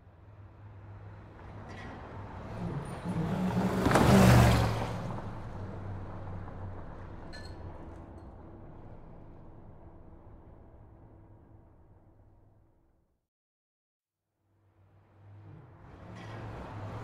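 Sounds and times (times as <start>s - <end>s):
traffic rumble: 0.1s - 12.6s, 14.9s - 17.0s
vehicle passing close by: 1.0s - 7.2s, 15.1s - 17.0s.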